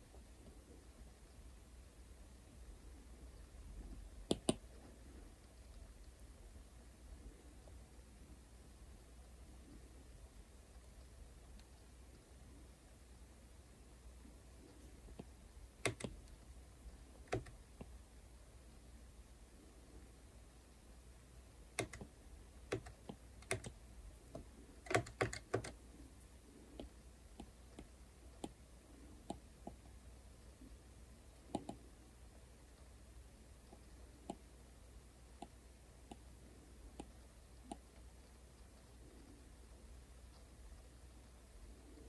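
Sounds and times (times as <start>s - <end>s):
stylus tapping on glass screen: 4.3s - 4.6s.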